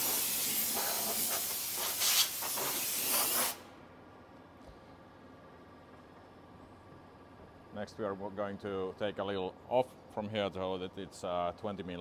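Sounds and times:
compressed air hissing from blow gun: 0.0s - 3.7s.

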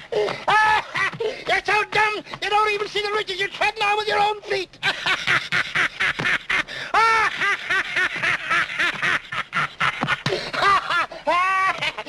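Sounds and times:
old man cackling laughter: 0.1s - 1.4s, 4.8s - 12.0s.

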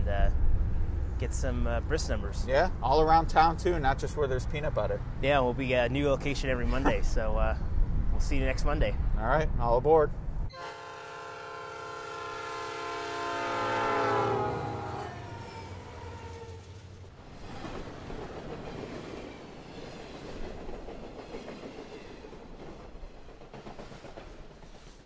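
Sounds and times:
train running past: 0.0s - 9.4s, 10.5s - 25.0s
train horn blowing: 10.5s - 16.7s.

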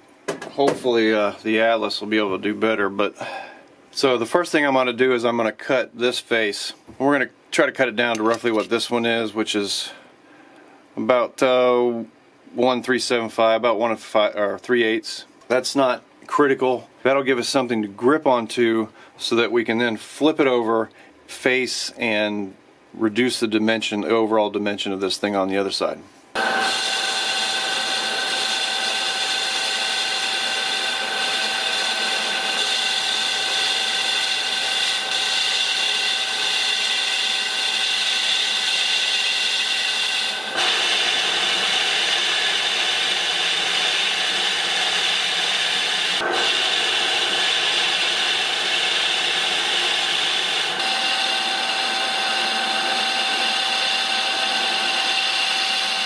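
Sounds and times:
lathe machine whining: 26.4s - 56.0s.

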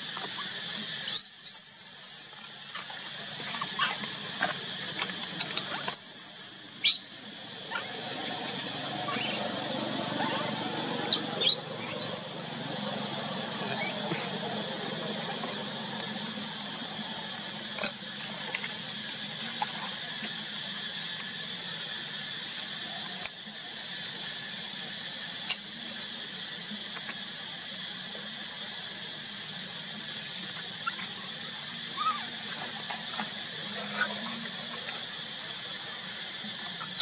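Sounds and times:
background hiss: 0.0s - 7.1s
constant high whine: 0.0s - 37.0s
baby monkey squeaks: 9.1s - 9.4s, 11.1s - 12.4s.

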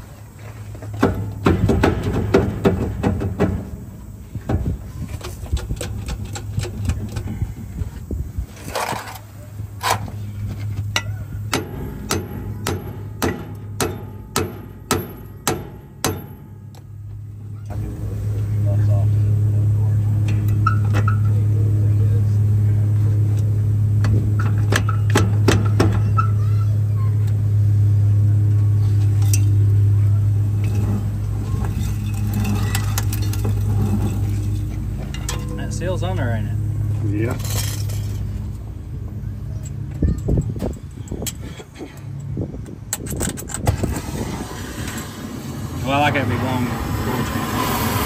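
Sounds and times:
low engine hum: 0.0s - 48.0s
hammer striking steel: 11.0s - 16.7s.

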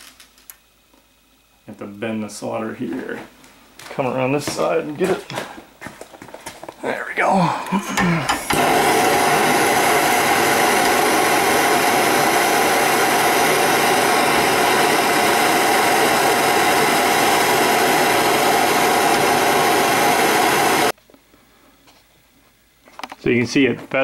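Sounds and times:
torch flame hissing: 6.7s - 21.0s.

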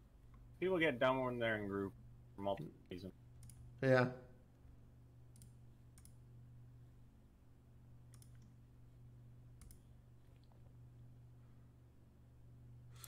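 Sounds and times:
low steady hum: 0.0s - 13.0s
computer clicks: 3.4s - 3.7s, 5.3s - 6.2s, 8.1s - 8.6s, 9.6s - 9.9s.

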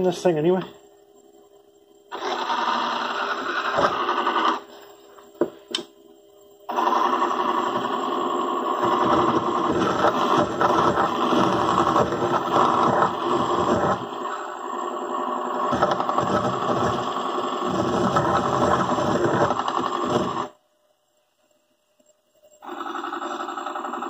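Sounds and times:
electric motor whine: 2.1s - 5.5s, 6.6s - 20.6s
file scraping metal nut: 8.8s - 14.2s, 15.7s - 20.5s.

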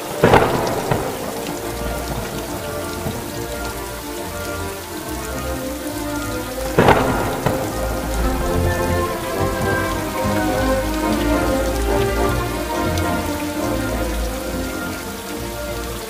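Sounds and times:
loud thunder cracks: 0.0s - 3.7s, 6.8s - 10.9s
steady rain: 0.0s - 16.0s.

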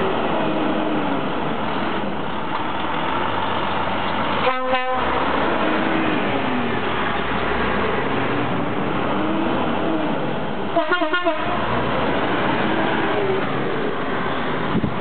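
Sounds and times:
trucks driving past: 0.0s - 15.0s
truck horn toots: 4.4s - 5.2s, 10.7s - 11.7s.

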